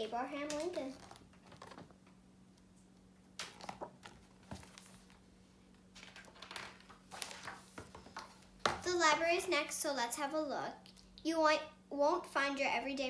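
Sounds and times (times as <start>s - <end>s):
steady low hum: 0.0s - 13.0s
book pages rustling: 0.4s - 2.0s, 3.4s - 8.8s.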